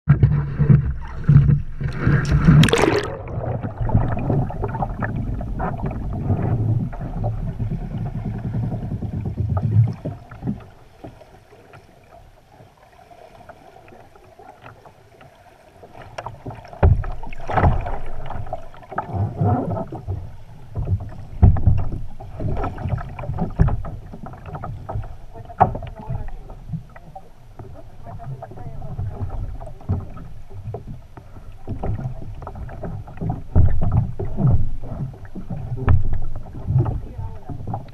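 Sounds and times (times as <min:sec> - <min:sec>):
underwater knocks and sloshes: 0:00.1 - 0:37.9
water sloshing against kayak: 0:00.1 - 0:37.9
loud splash: 0:01.0 - 0:05.1.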